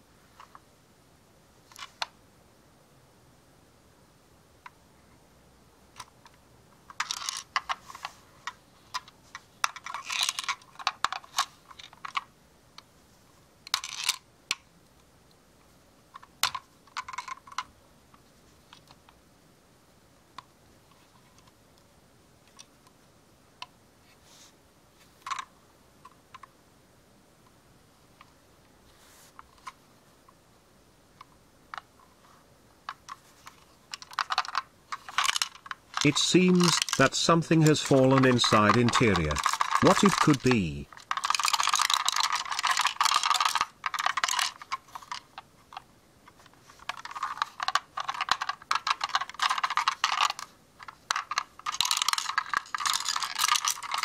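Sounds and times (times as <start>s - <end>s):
model van clicking and rattling: 8.9s - 12.3s, 32.9s - 37.0s, 37.9s - 54.0s.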